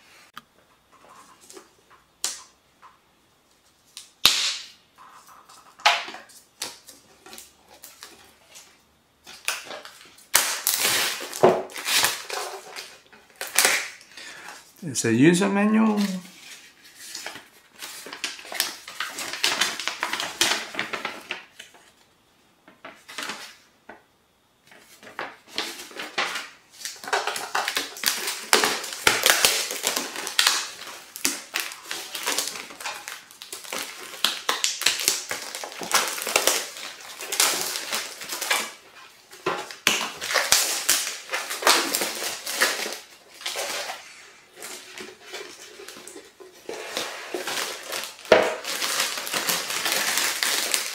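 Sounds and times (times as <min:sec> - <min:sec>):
packaging crinkling and rustling: 0:05.0 - 0:22.1, 0:22.7 - 0:23.7, 0:24.7 - 0:50.9.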